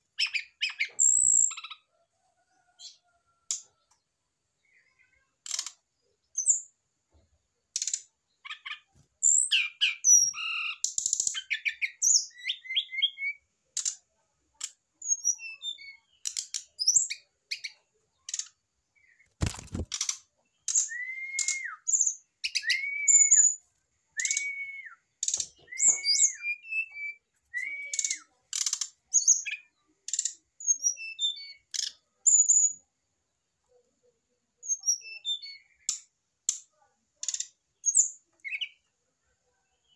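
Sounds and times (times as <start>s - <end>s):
bird chirps and twitters: 0.1s - 1.9s, 4.6s - 32.9s, 34.6s - 39.9s
bird whistled notes: 20.9s - 23.6s, 24.2s - 25.0s, 25.7s - 28.3s.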